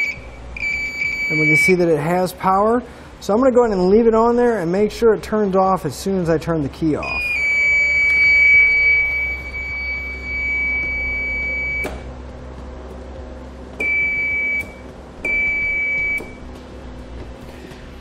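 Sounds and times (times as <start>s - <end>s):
short electronic beeps: 0.0s - 1.7s, 7.1s - 12.1s, 13.8s - 16.5s
electronic buzzer tone: 0.0s - 1.8s, 7.1s - 12.1s, 13.8s - 16.5s.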